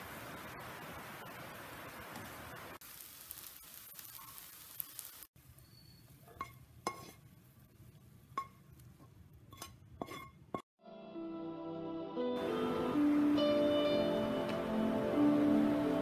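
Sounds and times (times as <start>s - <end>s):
frying hiss: 0.0s - 10.6s
utensil scraping a pan: 6.2s - 7.3s, 8.4s - 10.6s
soft music: 10.8s - 16.0s.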